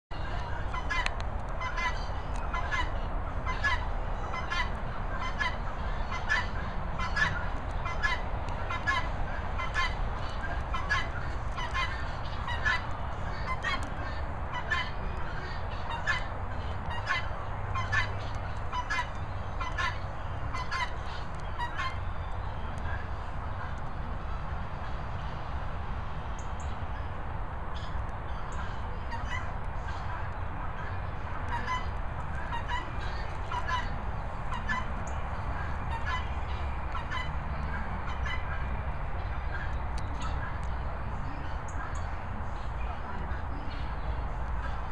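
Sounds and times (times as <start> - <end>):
bird calling: 27.8 - 38.6.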